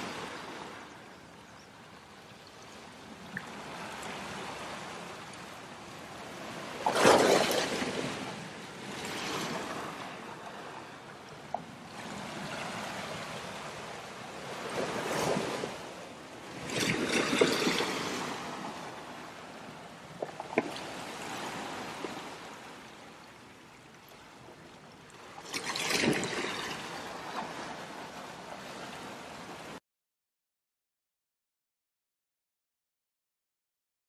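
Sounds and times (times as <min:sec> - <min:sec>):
water lapping: 0:02.6 - 0:23.4, 0:24.0 - 0:29.7
waves splashing over rock: 0:06.1 - 0:10.7, 0:12.0 - 0:22.9, 0:25.2 - 0:28.5.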